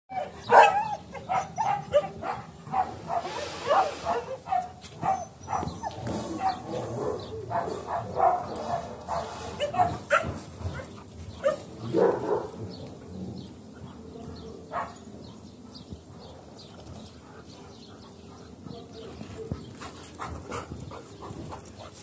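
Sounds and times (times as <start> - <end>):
dogs barking: 0.1 - 15.5.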